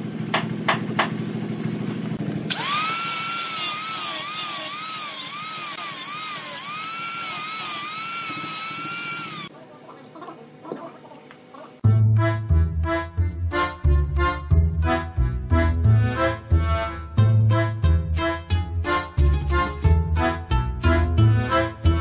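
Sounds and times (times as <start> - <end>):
angle grinder grinding wood: 2.4 - 9.5.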